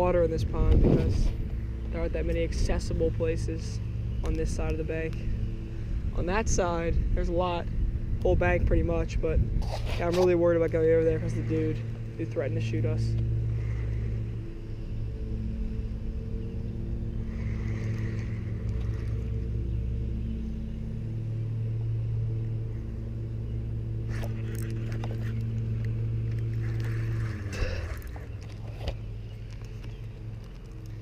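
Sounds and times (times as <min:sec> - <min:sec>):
low motor hum: 0:00.0 - 0:31.0.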